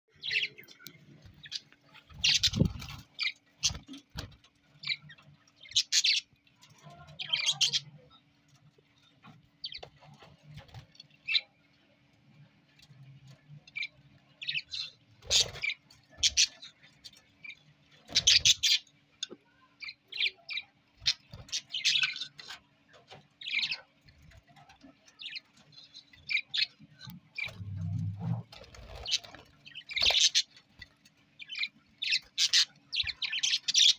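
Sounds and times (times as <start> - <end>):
budgerigars chirping: 1.4 - 4.0, 31.4 - 33.9.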